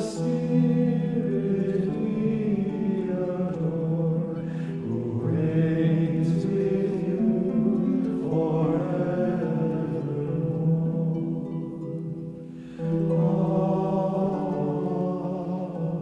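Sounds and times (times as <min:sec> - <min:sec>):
men chanting together: 0:00.0 - 0:03.6.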